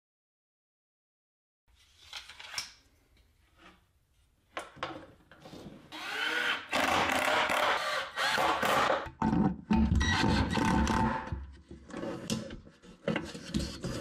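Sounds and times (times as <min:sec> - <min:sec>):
cordless drill driving screws: 0:05.9 - 0:09.1.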